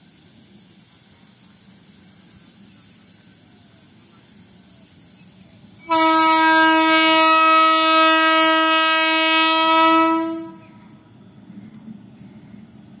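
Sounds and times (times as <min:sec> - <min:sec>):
electric locomotive horn blast: 0:05.8 - 0:10.8.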